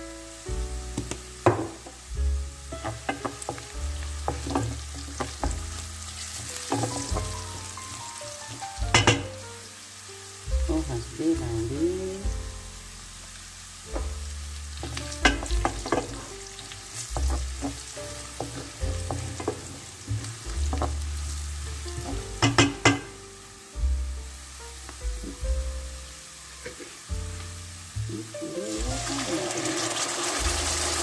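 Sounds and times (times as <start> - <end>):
food sizzling in oil: 0.0 - 31.0
spatula scraping and knocking pan: 2.8 - 7.7, 14.8 - 21.1, 21.8 - 23.1.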